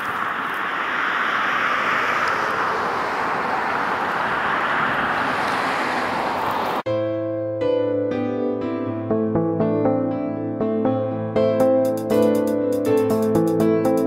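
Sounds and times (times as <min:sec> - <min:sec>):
wind blowing: 0:00.0 - 0:06.8.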